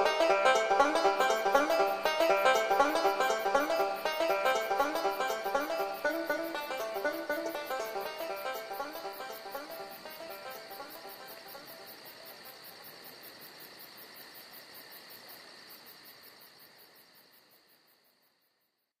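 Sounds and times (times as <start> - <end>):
plucked-string tune: 0.0 - 11.9
crickets chirping: 0.0 - 19.0.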